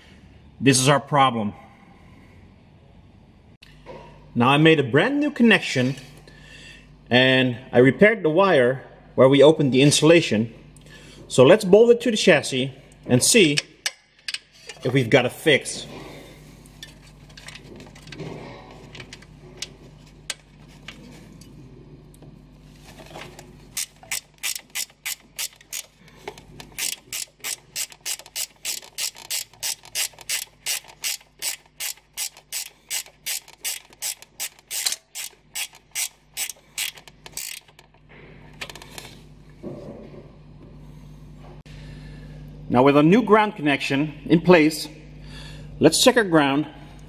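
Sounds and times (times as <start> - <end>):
handling tool and wire: 16.6 - 21.6, 22.7 - 39.2
hand ratchet clicking: 23.8 - 38.0.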